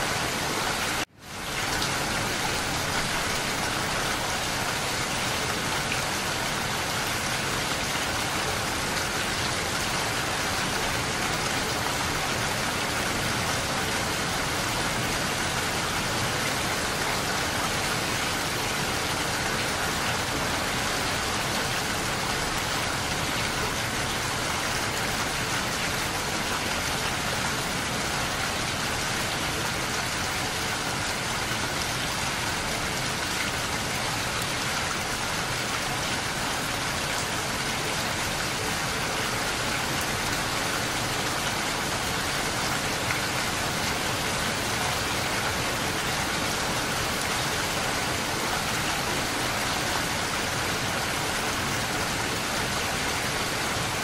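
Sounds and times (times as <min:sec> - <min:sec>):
steady rain: 0:00.0 - 0:54.0.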